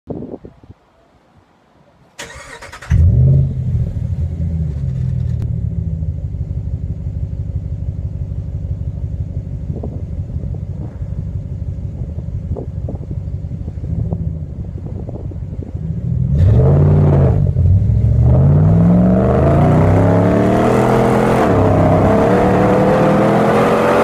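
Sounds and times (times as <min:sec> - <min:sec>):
pickup engine starting and idling: 0:02.2 - 0:16.1.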